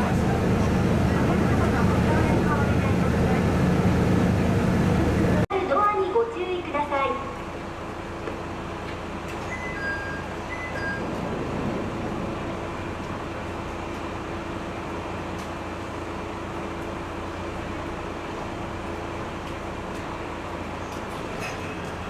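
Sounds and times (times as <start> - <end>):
diesel engine idling: 0.0 - 5.5.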